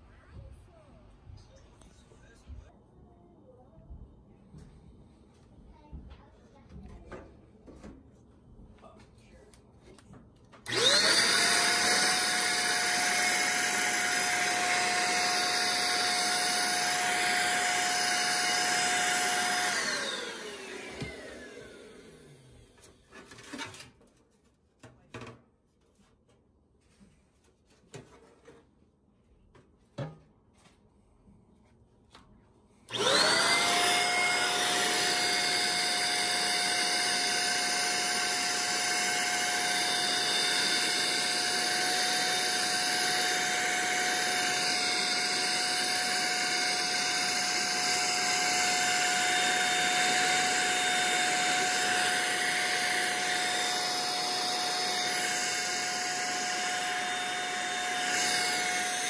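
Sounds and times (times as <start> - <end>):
handheld vacuum cleaner whine: 10.6 - 23.2, 32.9 - 59.0.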